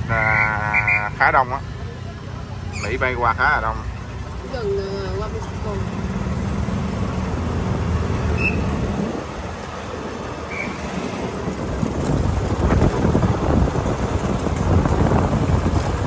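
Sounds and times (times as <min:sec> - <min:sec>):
golf cart rolling on pavement: 0:00.0 - 0:16.0
wind buffeting microphone: 0:07.0 - 0:16.0.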